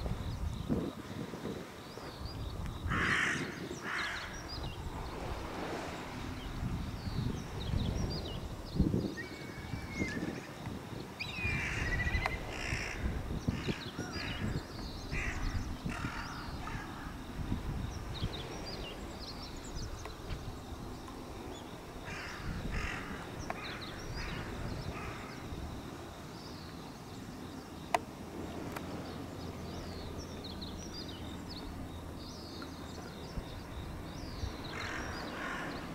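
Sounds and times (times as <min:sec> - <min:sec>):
crows cawing: 0:02.9 - 0:04.3, 0:12.5 - 0:13.0, 0:22.1 - 0:25.3, 0:34.8 - 0:35.7.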